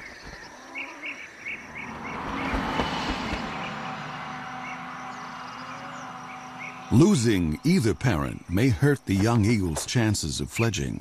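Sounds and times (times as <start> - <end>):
small birds chirping: 0.0 - 11.0
vehicle passing: 1.0 - 8.9.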